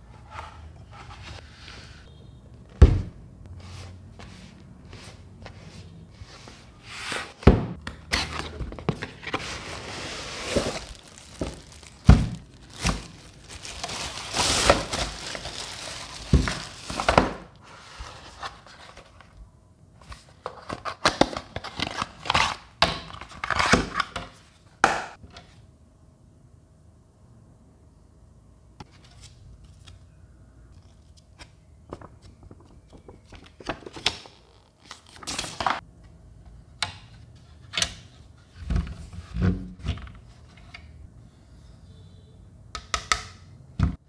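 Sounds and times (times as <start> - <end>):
cardboard box opened: 8.1 - 17.2
paper rustling and crinkling: 8.2 - 19.2.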